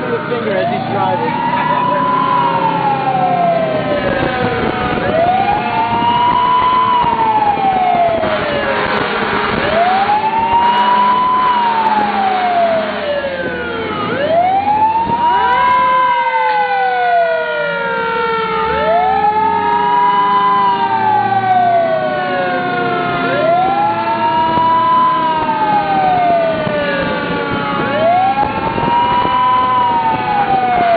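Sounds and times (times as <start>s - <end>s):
fire truck siren winding: 0.0s - 30.9s
faint falling siren tones: 9.7s - 30.9s.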